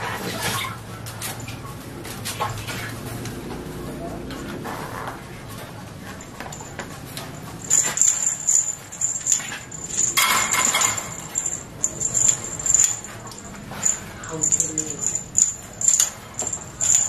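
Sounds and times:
high jingling ring: 6.0 - 17.0.

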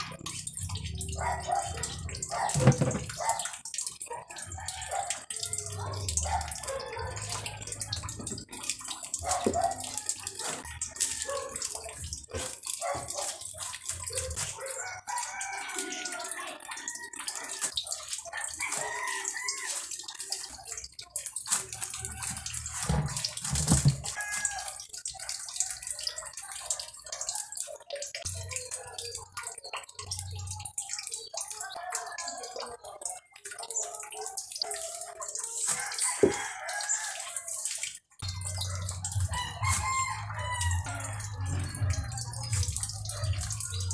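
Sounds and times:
rooster crowing: 14.8 - 17.7, 18.4 - 19.8, 24.0 - 24.8, 35.8 - 37.4, 39.3 - 42.0.

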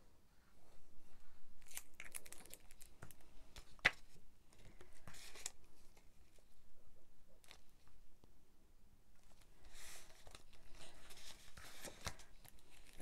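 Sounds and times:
paper rustling: 9.2 - 13.0.

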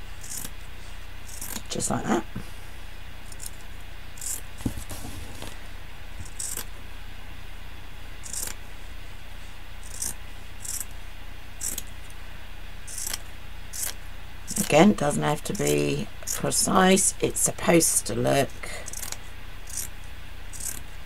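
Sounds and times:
scissors snipping fabric: 1.3 - 1.6, 6.2 - 6.7, 8.2 - 8.6, 12.9 - 13.2, 18.8 - 19.9, 20.6 - 20.8.

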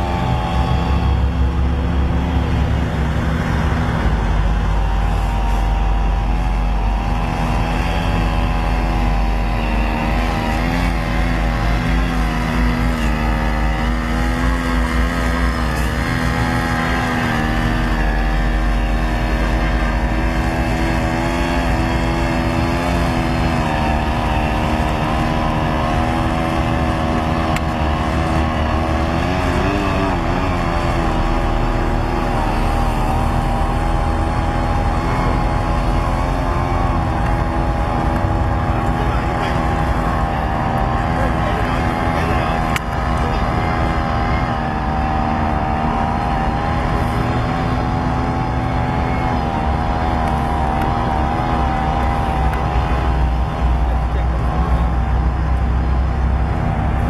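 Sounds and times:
outboard motor running: 0.0 - 57.0.

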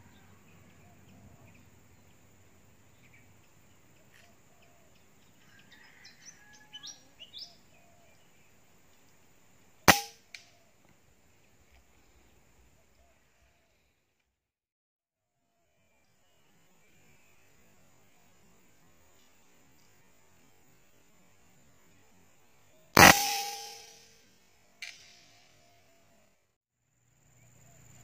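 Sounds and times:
air rifle shot crack: 9.9 - 10.1, 23.0 - 24.0
fainter echo crack: 9.9 - 10.1, 23.0 - 24.0.

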